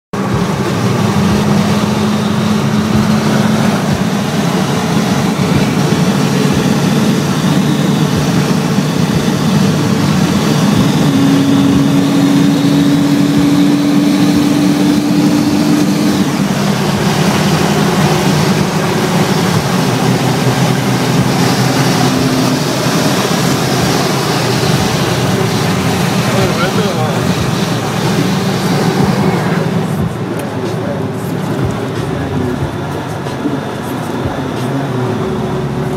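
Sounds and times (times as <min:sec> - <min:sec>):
car engine and exhaust drone: 0:00.1 - 0:35.9
road and wind noise: 0:00.1 - 0:35.9.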